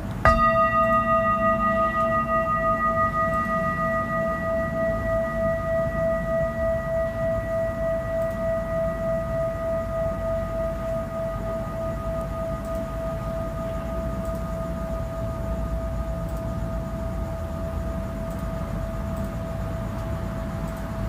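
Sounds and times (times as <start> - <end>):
singing bowl ringing: 0.0 - 21.0.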